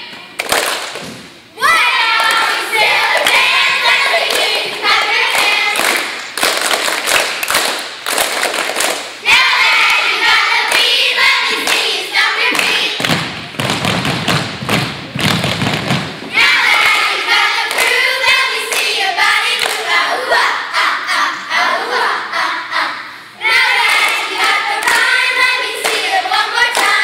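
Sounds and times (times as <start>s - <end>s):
girls chanting a cheer: 1.6s - 6.3s, 9.2s - 13.4s, 16.3s - 27.0s.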